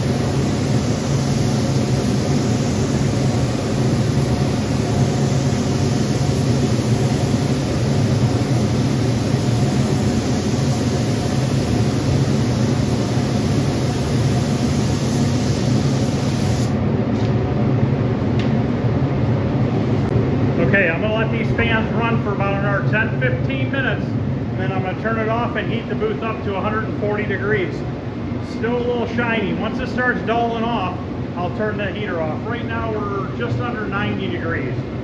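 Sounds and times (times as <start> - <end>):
spray gun hissing: 0.0 - 16.8
steady low hum: 0.0 - 35.0.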